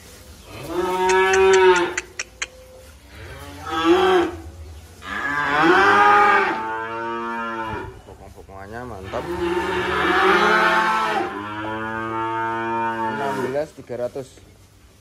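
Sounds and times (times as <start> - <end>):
cattle mooing: 0.6 - 2.3, 3.2 - 4.4, 5.0 - 8.0, 8.9 - 13.6.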